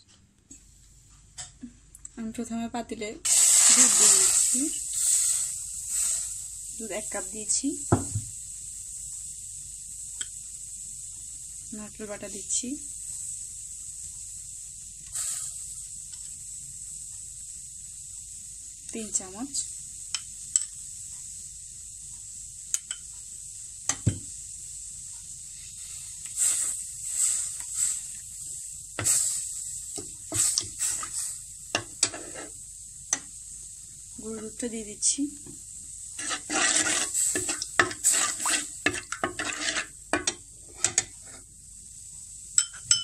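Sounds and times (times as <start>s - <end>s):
faint steady hiss: 0.0s - 43.0s
spoon stirring liquid: 31.8s - 32.5s, 36.2s - 41.3s.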